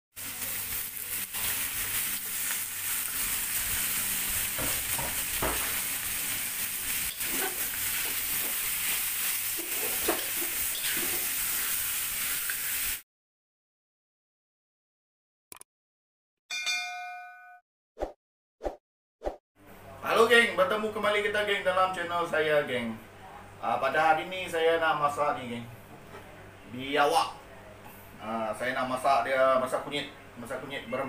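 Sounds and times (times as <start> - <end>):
meat sizzling in hot oil: 0.1 - 13.0
metal spatula scraping a wok: 7.1 - 8.6, 9.6 - 11.4.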